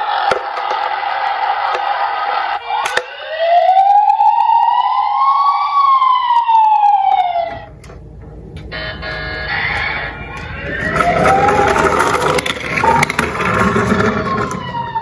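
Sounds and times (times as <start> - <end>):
toy siren wailing: 2.4 - 7.7, 8.7 - 15.0.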